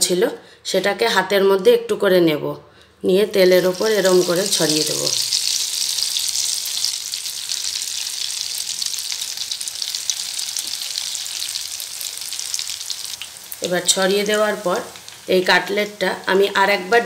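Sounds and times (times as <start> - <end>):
egg sizzling in hot oil: 3.6 - 17.0.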